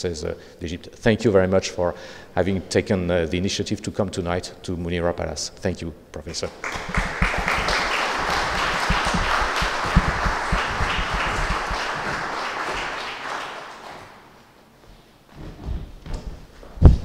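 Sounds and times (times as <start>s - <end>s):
audience applauding: 6.6s - 14.3s.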